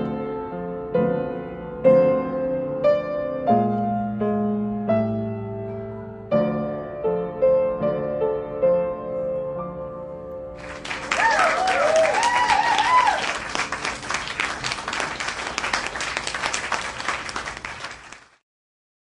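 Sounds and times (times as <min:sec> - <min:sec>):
applause: 0:10.6 - 0:18.4
voices cheering: 0:11.0 - 0:13.8.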